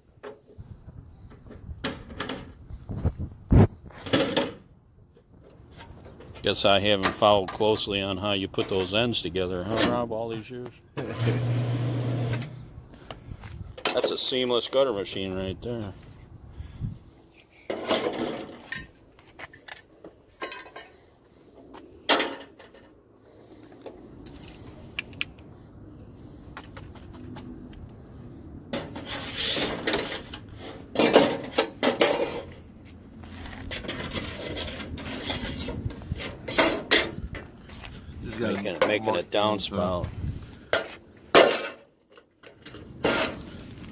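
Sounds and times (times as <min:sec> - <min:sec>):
metal clanking and rattling: 0:28.7 - 0:32.6.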